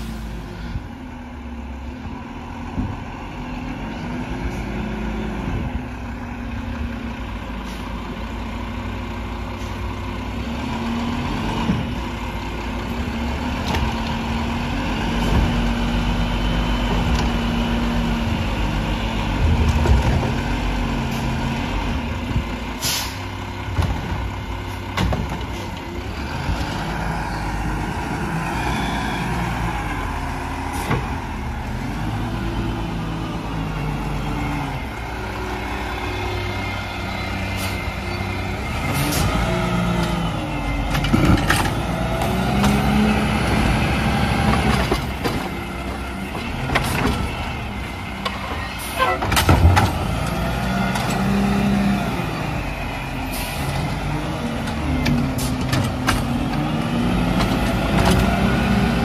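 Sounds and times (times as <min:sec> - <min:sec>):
air brake hiss: 0:00.0 - 0:00.8, 0:22.8 - 0:23.3
garbage truck diesel engine: 0:00.0 - 0:59.0.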